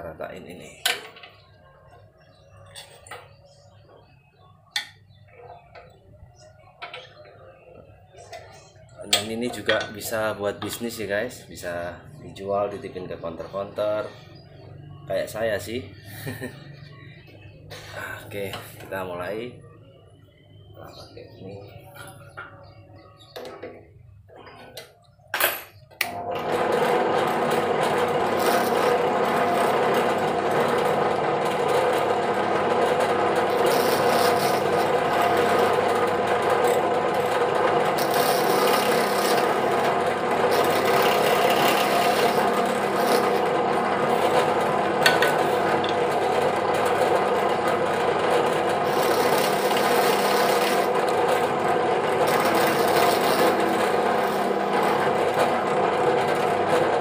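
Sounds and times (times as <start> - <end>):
drill press motor humming: 26.0 - 57.0
drill bit rasping into wood: 28.3 - 29.7, 33.2 - 36.0, 36.6 - 45.2, 48.5 - 55.2.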